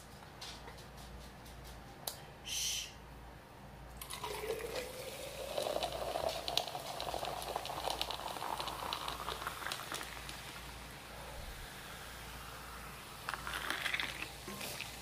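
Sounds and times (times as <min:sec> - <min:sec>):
liquid pouring into glass jar: 0:04.0 - 0:10.7, 0:13.2 - 0:15.0.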